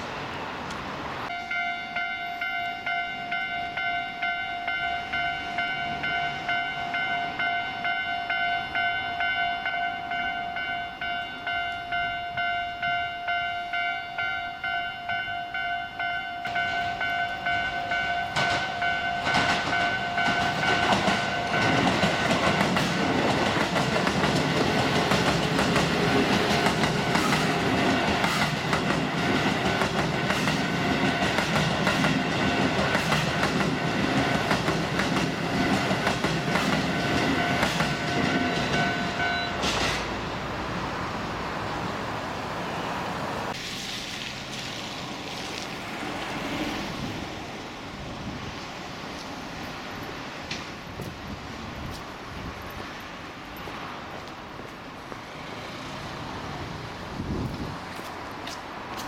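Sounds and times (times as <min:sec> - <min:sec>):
level crossing bell ringing: 0:01.3 - 0:22.7, 0:36.8 - 0:39.6
train wheels rumbling and clattering: 0:16.5 - 0:40.5.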